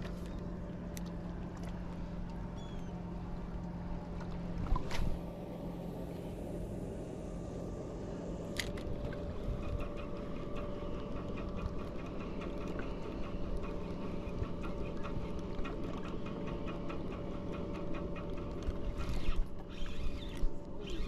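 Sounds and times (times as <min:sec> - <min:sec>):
fishing reel clicking: 0:19.0 - 0:21.0.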